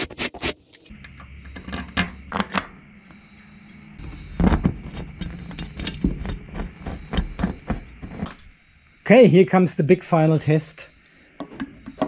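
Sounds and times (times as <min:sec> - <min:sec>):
rubbing handling noise: 0:04.0 - 0:08.5
nuts and bolts clicking: 0:04.0 - 0:08.6, 0:11.3 - 0:12.0.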